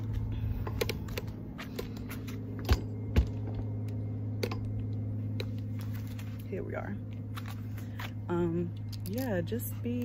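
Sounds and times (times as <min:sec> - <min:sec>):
phone handling noise: 0:00.0 - 0:05.7
steady low hum: 0:00.0 - 0:10.0.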